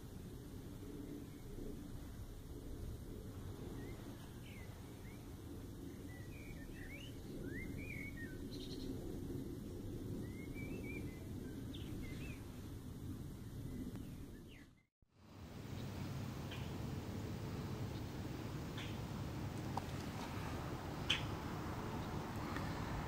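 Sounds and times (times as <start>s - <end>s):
low steady rumble: 0.0s - 23.0s
small birds chirping: 3.6s - 9.1s, 10.2s - 12.5s, 13.3s - 14.9s, 15.6s - 16.8s, 17.8s - 23.0s.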